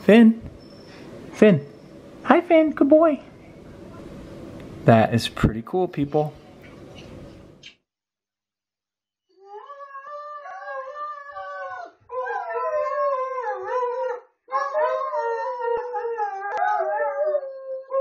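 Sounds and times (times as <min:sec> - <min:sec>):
dogs howling: 0:09.4 - 0:18.0.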